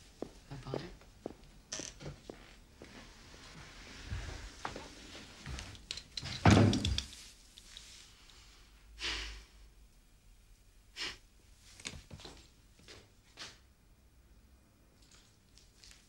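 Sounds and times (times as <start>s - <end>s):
door thudding shut: 6.4s - 7.0s.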